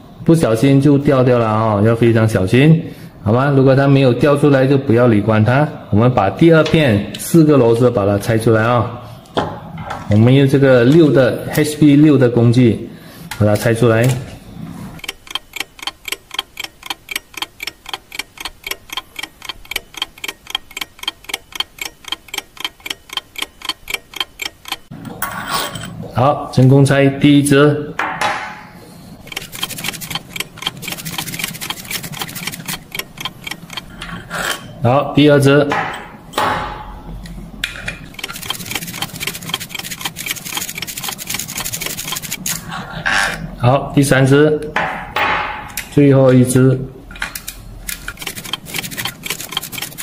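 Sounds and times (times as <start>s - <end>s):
ratchet wrench clicking: 15.0s - 24.9s, 29.2s - 34.1s, 38.1s - 42.6s, 47.9s - 50.0s
steady ticking: 15.0s - 25.0s, 29.2s - 34.2s, 38.1s - 42.5s, 47.9s - 50.0s.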